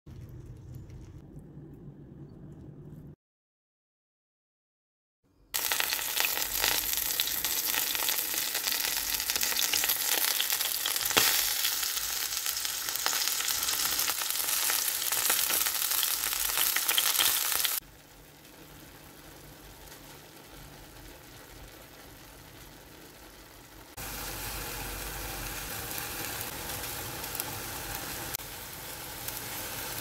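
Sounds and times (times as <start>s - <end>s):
meat sizzling in a pan: 5.6s - 30.0s.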